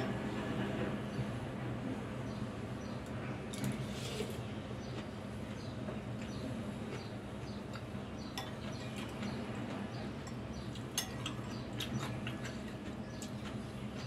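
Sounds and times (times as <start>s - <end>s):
cutlery clinking against ceramic bowl: 7.8s - 9.4s, 10.2s - 13.3s.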